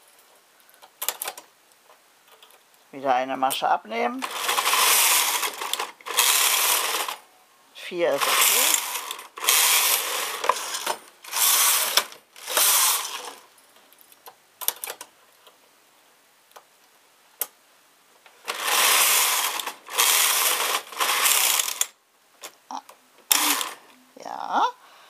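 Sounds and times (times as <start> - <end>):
knitting machine carriage rattling: 4.2 - 7.2, 8.1 - 13.5, 18.5 - 21.9.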